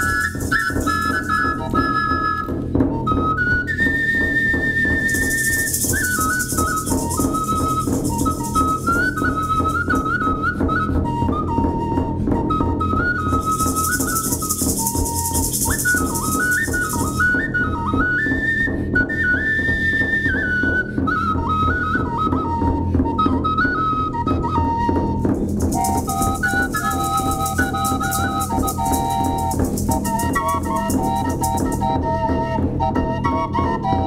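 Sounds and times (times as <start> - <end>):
rattle shaking: 0.0 - 2.0, 5.0 - 10.2, 13.4 - 17.4, 25.3 - 32.0
clay flute melody: 0.0 - 34.0.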